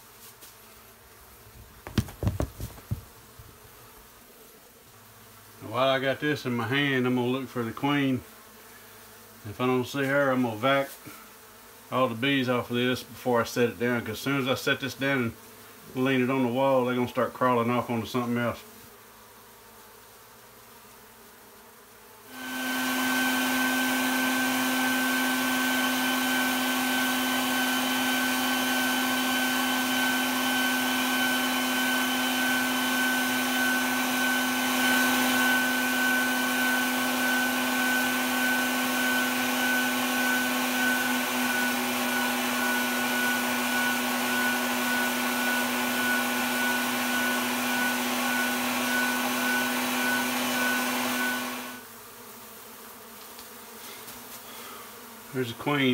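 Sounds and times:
vacuum running: 1.4 - 3.8, 22.3 - 51.8.

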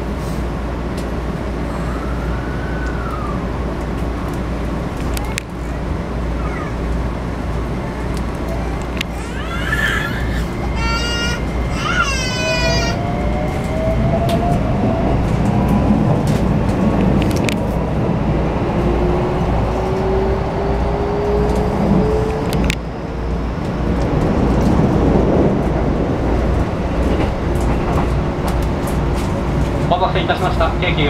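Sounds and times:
wheels rumbling: 0.0 - 31.0.

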